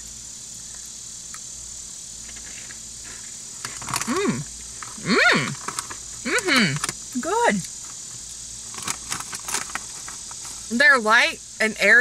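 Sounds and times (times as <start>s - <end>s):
crickets trilling: 0.0s - 12.0s
woman humming: 4.0s - 5.6s, 6.2s - 7.4s.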